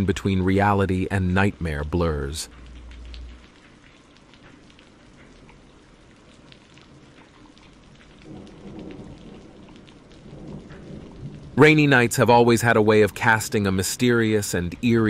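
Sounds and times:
steady rain falling: 0:00.0 - 0:15.0
distant thunder rumble: 0:08.2 - 0:13.8.

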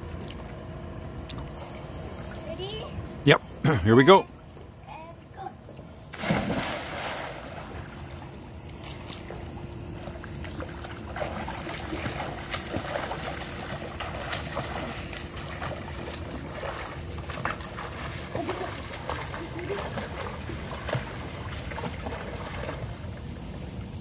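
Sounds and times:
faint steady hum: 0:00.0 - 0:24.0
swimmer splashing in pool: 0:06.1 - 0:23.4.

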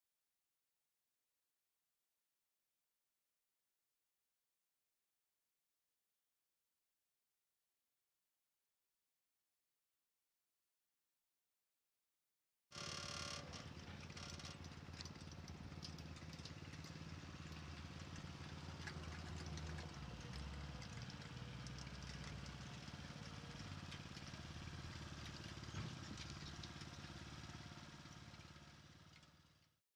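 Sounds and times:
engine running steadily: 0:12.8 - 0:29.7
light clicks and clatter: 0:12.9 - 0:29.7.

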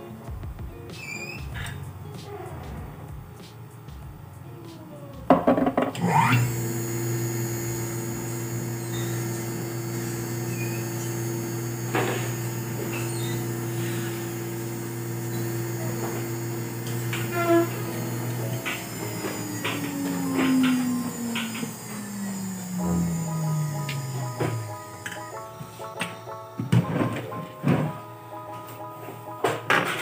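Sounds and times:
lathe motor humming: 0:06.0 - 0:27.0.

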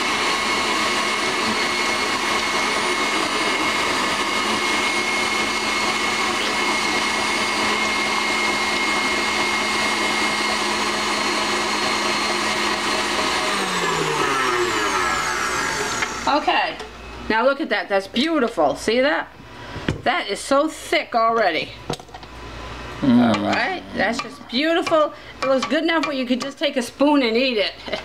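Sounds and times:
stand mixer motor humming: 0:00.0 - 0:16.4.

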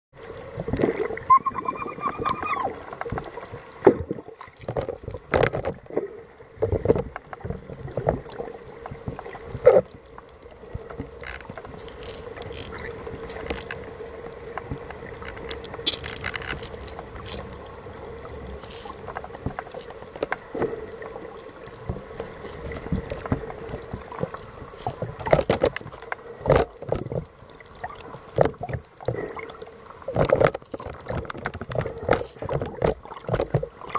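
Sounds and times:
water rushing and bubbling: 0:00.2 - 0:33.9
underwater knocks and splashes: 0:00.5 - 0:33.9
whistle-like tone: 0:01.3 - 0:02.8.

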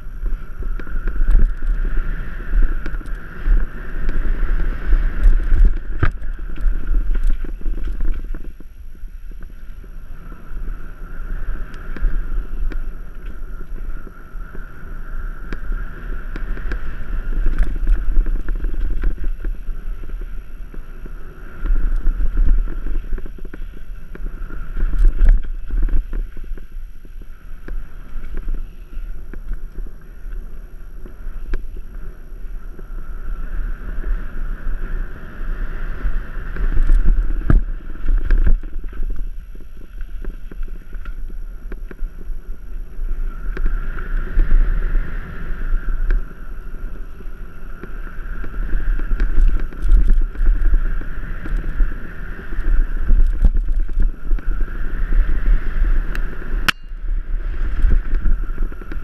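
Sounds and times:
tyre noise on dirt: 0:00.0 - 0:59.0
wind buffeting microphone: 0:00.0 - 0:59.0
bike knocks and rattles: 0:02.6 - 0:09.6.

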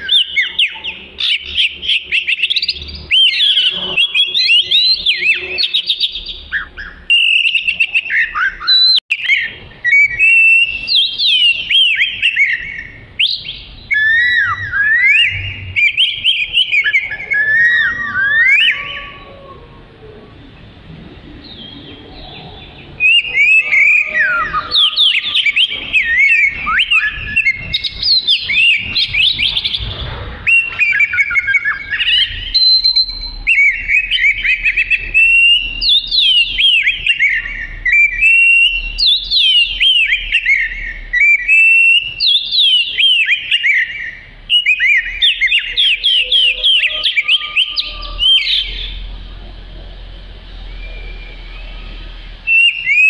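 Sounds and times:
bird singing whistled phrases: 0:00.0 - 0:19.5, 0:21.4 - 0:29.8, 0:30.4 - 0:49.1, 0:50.6 - 0:53.0.

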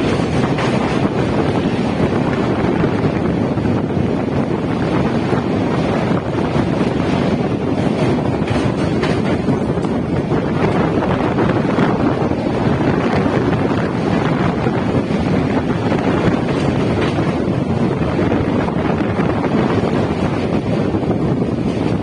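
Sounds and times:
train rumbling over steel bridge: 0:00.0 - 0:22.0
wind buffeting microphone: 0:00.0 - 0:22.0.

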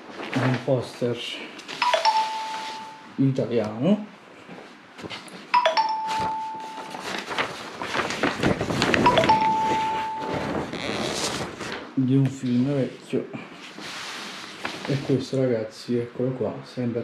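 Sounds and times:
paper poster rustling: 0:00.0 - 0:03.1, 0:05.0 - 0:12.8, 0:13.6 - 0:15.4
electronic chime: 0:01.8 - 0:03.2, 0:05.6 - 0:07.0, 0:09.1 - 0:10.7.

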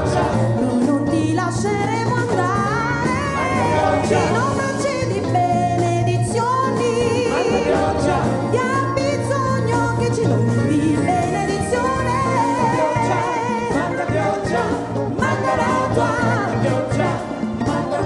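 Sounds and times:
choir singing: 0:00.0 - 0:01.1, 0:02.6 - 0:05.2, 0:06.8 - 0:08.9, 0:10.8 - 0:18.0
steady bass line: 0:00.0 - 0:18.0
women singing lead with vibrato: 0:00.0 - 0:18.0.

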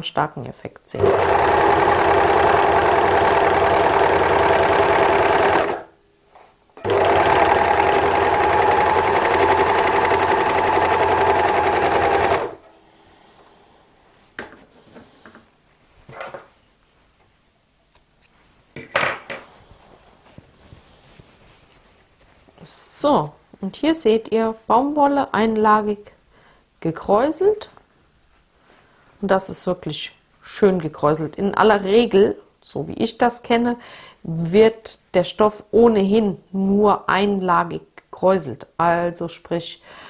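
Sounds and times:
overlock sewing machine running: 0:01.0 - 0:05.9, 0:06.8 - 0:12.6.

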